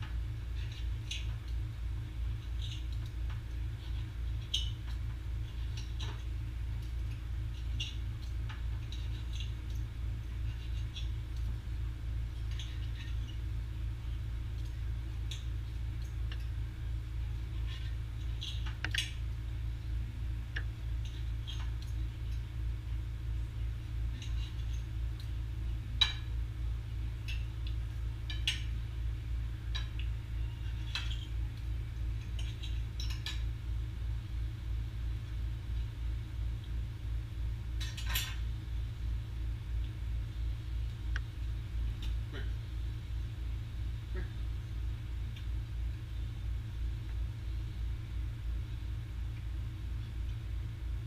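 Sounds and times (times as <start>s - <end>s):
low hum: 0.0s - 51.0s.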